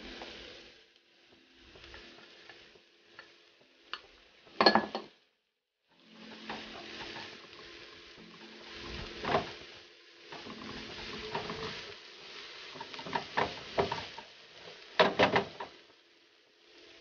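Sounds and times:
onions sizzling in a frying pan: 0.0 - 17.0
spatula scraping and tapping pan: 10.3 - 14.3.

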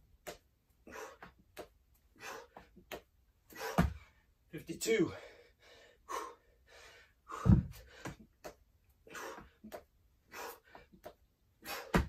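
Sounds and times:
man breathing hard: 0.8 - 1.4, 2.1 - 2.8, 3.5 - 4.3, 5.1 - 12.0
dumbbells thudding on floor: 3.6 - 4.1, 7.4 - 8.2, 11.8 - 12.0.

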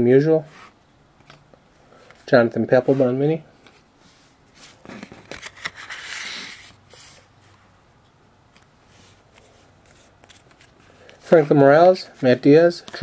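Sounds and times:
cards sliding swish: 5.4 - 7.3.

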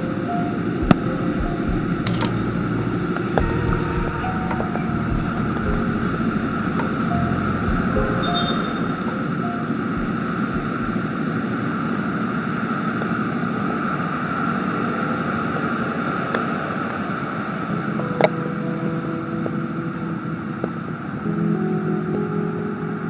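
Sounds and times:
passing traffic rumble: 0.0 - 21.2
sharp click: 2.0 - 2.4.

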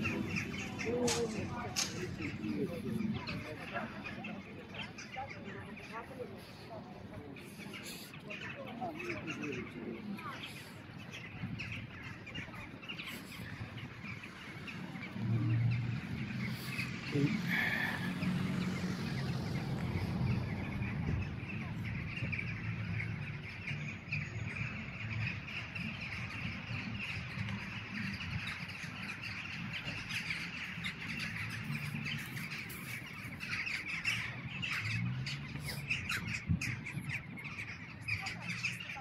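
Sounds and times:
low city rumble: 0.0 - 39.0
crows calling: 16.0 - 19.3.

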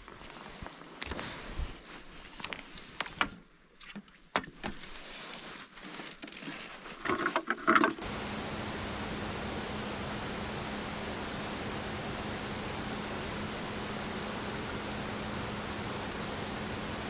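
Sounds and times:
faint low hum: 8.0 - 17.0
steady hiss: 8.0 - 17.0.

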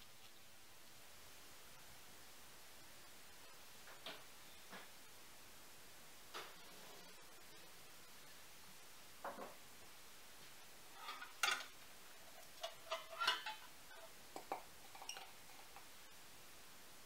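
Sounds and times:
metal pan clanking on a rack: 11.0 - 11.7, 12.6 - 13.7.

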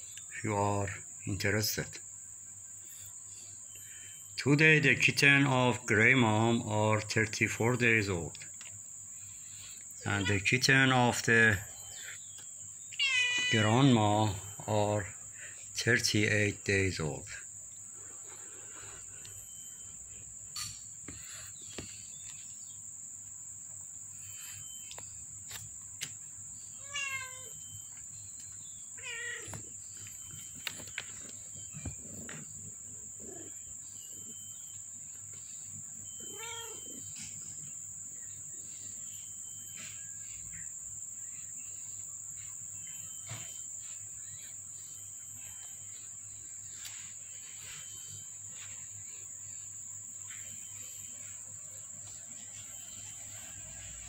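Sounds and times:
crickets chirring: 0.0 - 54.0
kittens meowing: 10.0 - 10.6, 12.9 - 14.4, 26.8 - 27.6, 29.0 - 29.7, 36.2 - 37.0.

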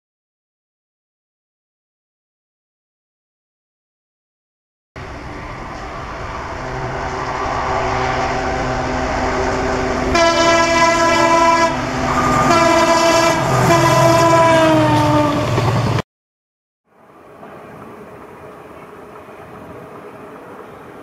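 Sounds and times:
diesel locomotive engine rumble: 5.0 - 16.0, 16.9 - 21.0
locomotive air horn blasts: 6.6 - 15.6.

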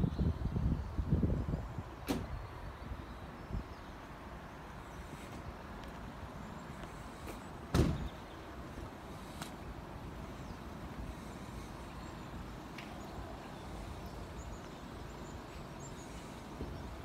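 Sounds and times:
road traffic rumble: 0.0 - 17.0
wind: 0.0 - 17.0
loud thump: 7.7 - 8.1.

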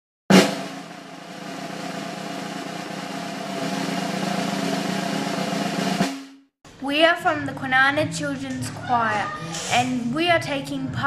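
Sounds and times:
drum roll: 0.3 - 6.5.

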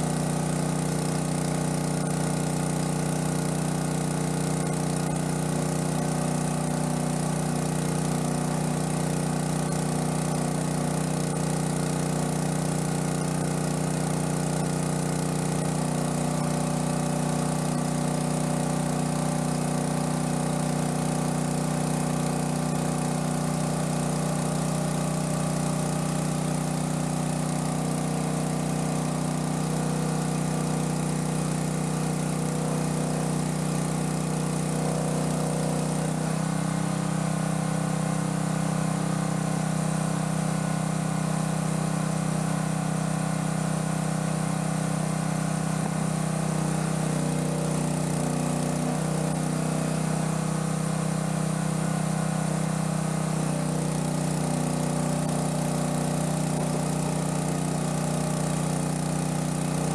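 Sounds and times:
small gasoline engine running: 0.0 - 59.9.

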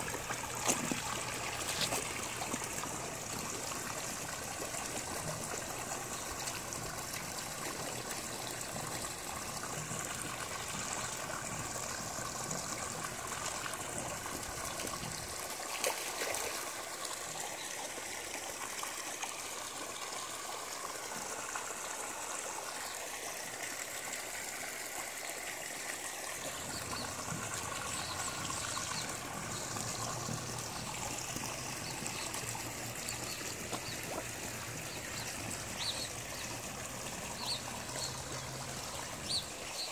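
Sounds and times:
water splashing into pond: 0.0 - 39.9.

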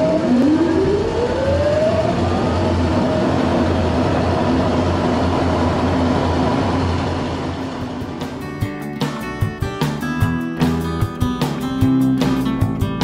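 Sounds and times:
electric motor whine: 0.0 - 8.1.

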